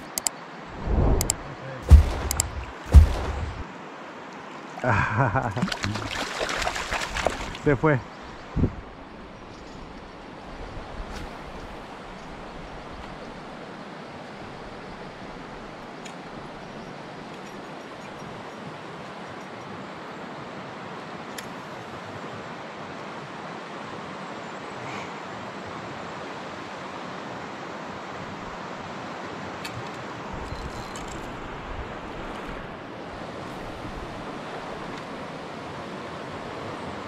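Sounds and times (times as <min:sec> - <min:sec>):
faint clicks: 0:00.0 - 0:00.4
river water hissing: 0:00.0 - 0:17.3, 0:19.9 - 0:30.5, 0:31.3 - 0:37.0
wind buffeting microphone: 0:00.7 - 0:03.6, 0:08.4 - 0:09.0.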